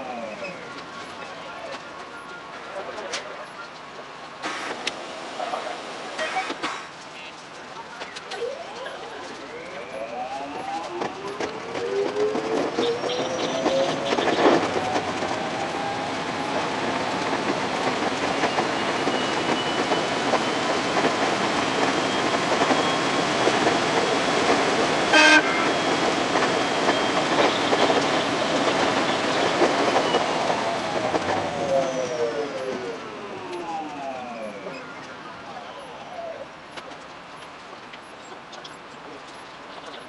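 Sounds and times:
electric train rail noise: 0:00.0 - 0:40.0
train horn toot: 0:25.1 - 0:25.8.

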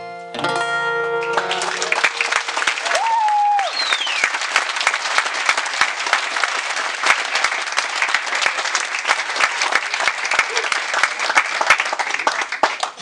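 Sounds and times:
audience applauding: 0:01.2 - 0:13.0
high falling whistle: 0:02.8 - 0:04.4.

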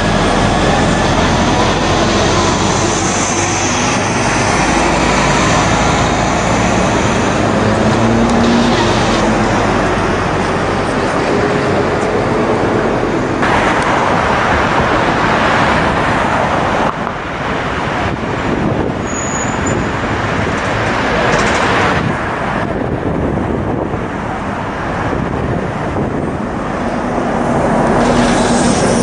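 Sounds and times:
bus engine humming: 0:00.0 - 0:29.0
city street traffic: 0:00.0 - 0:29.0.

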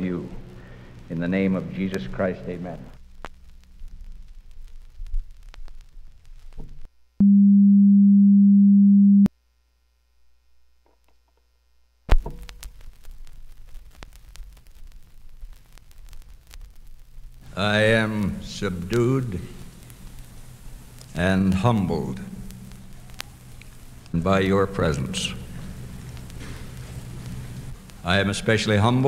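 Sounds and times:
vinyl record crackle and pops: 0:00.0 - 0:07.2, 0:09.4 - 0:29.0
loud steady low tone: 0:07.2 - 0:09.3.

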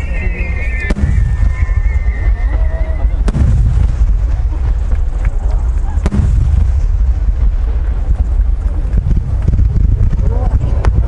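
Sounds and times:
firework booms: 0:00.0 - 0:11.0
firework sharp crack: 0:00.6 - 0:11.0.

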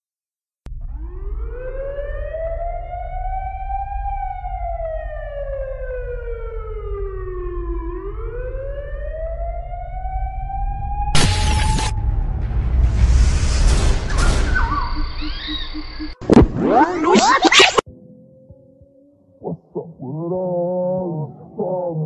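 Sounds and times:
wailing siren: 0:00.7 - 0:12.6, 0:14.2 - 0:17.2
low bass rumble: 0:00.7 - 0:16.6
burst of noise: 0:11.2 - 0:17.8.

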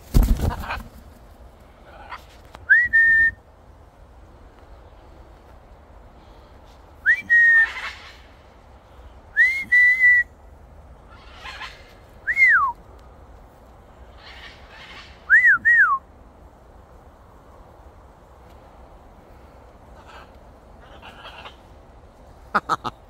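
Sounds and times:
person whistling: 0:02.7 - 0:03.4, 0:07.0 - 0:07.6, 0:09.4 - 0:10.2, 0:15.3 - 0:16.0.

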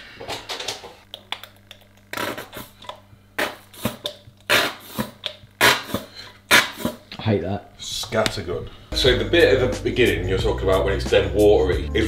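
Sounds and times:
squeezy bottle sputtering: 0:01.7 - 0:07.0.

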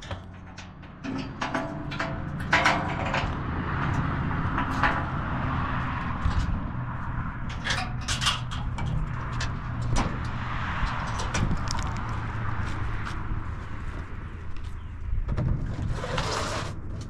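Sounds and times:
sheet metal panels clanking: 0:00.0 - 0:06.7, 0:07.4 - 0:10.4
steady low rumble: 0:00.0 - 0:15.9.

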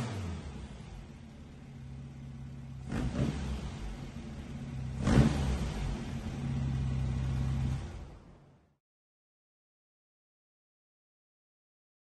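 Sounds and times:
engine running and revving: 0:00.0 - 0:08.4.

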